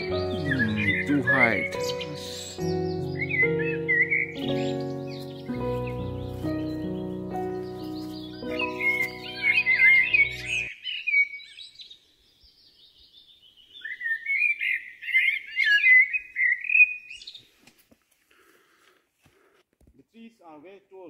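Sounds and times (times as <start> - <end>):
background music with held chords: 0.0 - 10.7
songbird warbling: 0.0 - 11.8.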